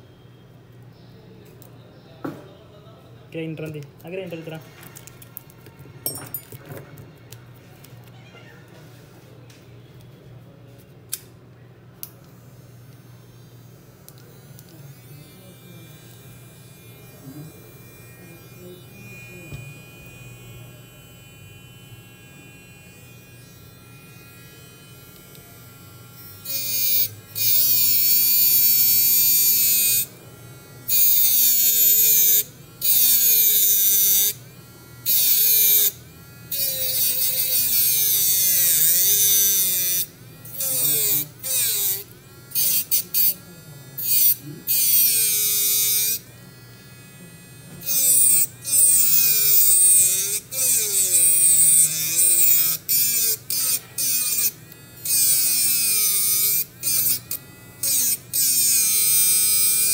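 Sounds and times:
electric grinder whining: 0:14.6 - 0:59.9.

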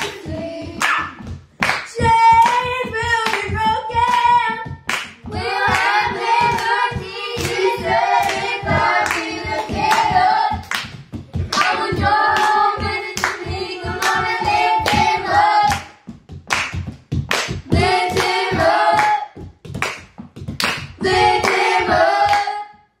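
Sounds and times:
children clapping: 0:00.0 - 0:22.6
children singing: 0:05.3 - 0:10.6, 0:11.5 - 0:15.8, 0:21.0 - 0:22.8.

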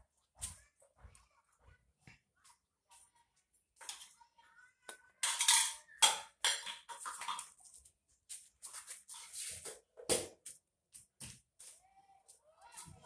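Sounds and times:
pipe fittings clicking and scraping: 0:05.2 - 0:07.8.

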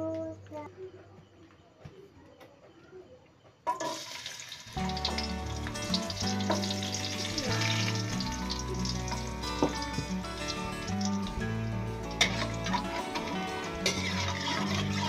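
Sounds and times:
garlic sizzling in hot oil: 0:03.8 - 0:15.0
background music with beat: 0:04.8 - 0:13.9.

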